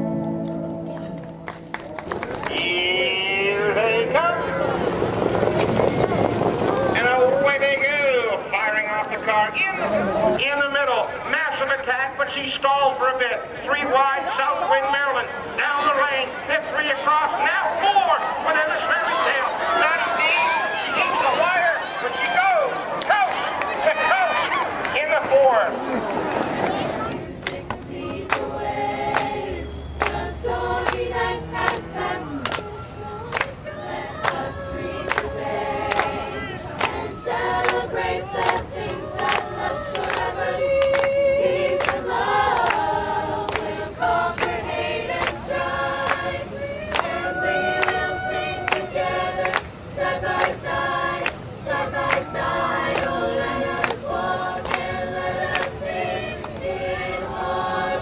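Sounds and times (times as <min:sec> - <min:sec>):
sharp hand claps: 0:00.4 - 0:02.7, 0:30.0 - 0:30.2, 0:35.1 - 0:35.3, 0:53.8 - 0:54.0, 0:55.5 - 0:55.8
choir singing a cappella: 0:27.0 - 0:58.0.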